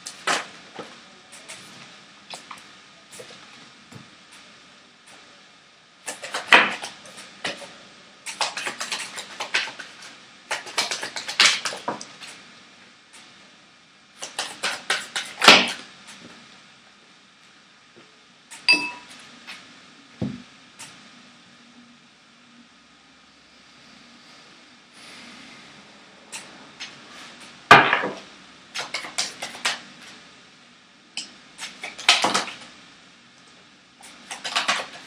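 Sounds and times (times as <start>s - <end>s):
cards being shuffled: 8.3s - 12.0s, 14.2s - 15.8s, 34.1s - 35.0s
sharp tap with ringing tone: 18.7s - 19.1s.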